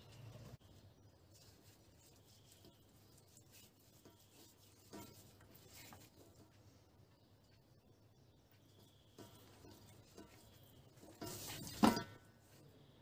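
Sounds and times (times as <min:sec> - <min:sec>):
hands rubbing oil into meat: 0:01.3 - 0:06.5.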